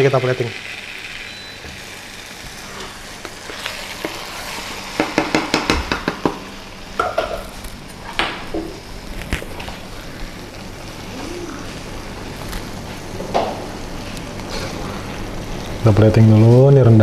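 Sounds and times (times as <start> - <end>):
utensils knocking and scraping a wok: 2.8 - 8.8.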